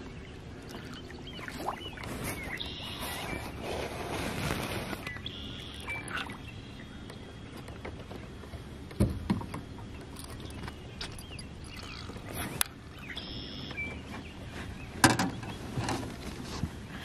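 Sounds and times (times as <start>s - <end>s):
bird chirping: 0.0s - 3.6s, 5.0s - 7.9s, 9.4s - 15.8s.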